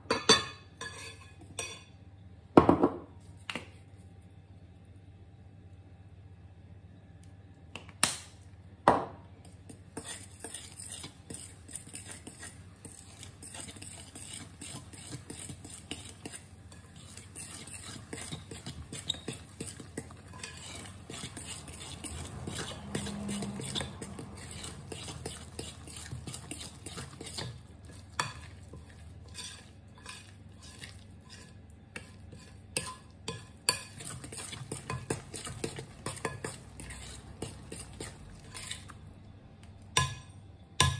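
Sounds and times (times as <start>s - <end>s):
spoon scraping glass bowl: 0.8s - 1.8s, 9.7s - 39.0s.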